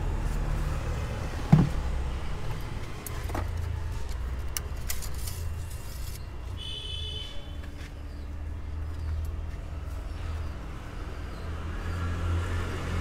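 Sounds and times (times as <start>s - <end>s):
plastic bottle thump: 1.5s - 1.8s.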